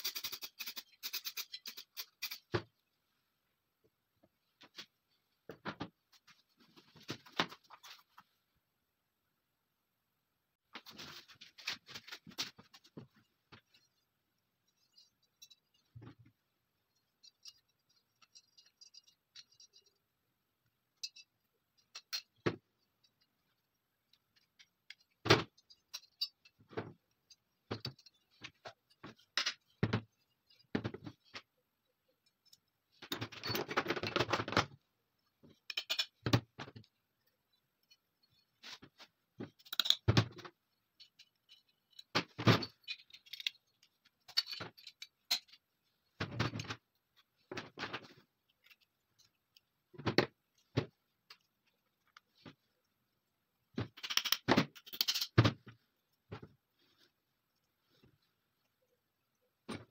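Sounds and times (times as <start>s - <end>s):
metal parts clicking on wood: 0.0s - 2.5s, 39.5s - 45.7s, 53.9s - 55.4s.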